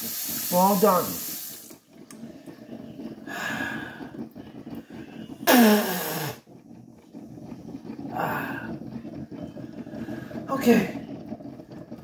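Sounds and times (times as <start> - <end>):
faucet running into metal sink: 0.0 - 1.8.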